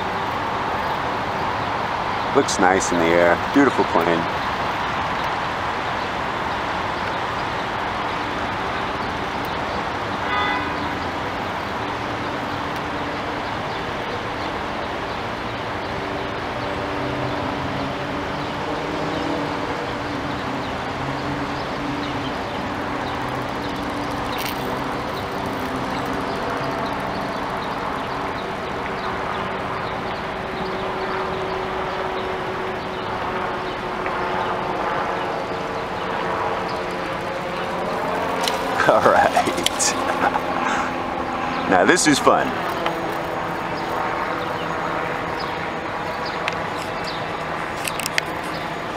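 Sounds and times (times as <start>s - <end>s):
city traffic noise: 0.0s - 48.9s
car horn toot: 10.2s - 10.8s.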